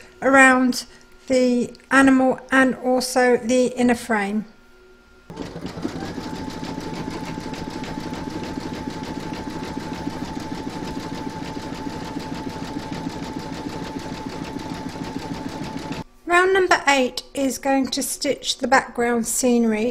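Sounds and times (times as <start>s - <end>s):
embroidery machine stitching: 5.3s - 16.0s.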